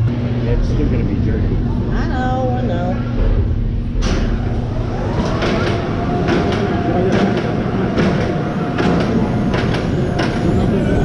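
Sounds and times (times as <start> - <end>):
roller coaster wheels rumbling: 0.0 - 11.0
whine: 0.0 - 11.0.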